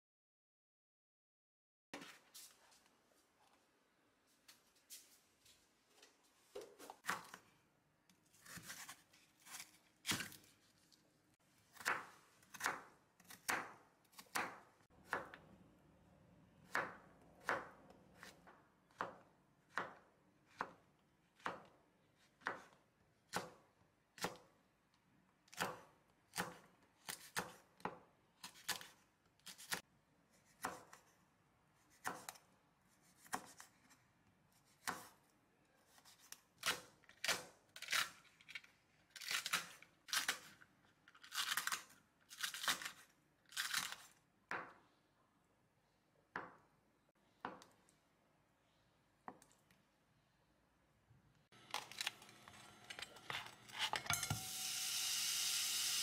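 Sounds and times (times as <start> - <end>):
knife chopping on wooden board: 11.7 - 15.4.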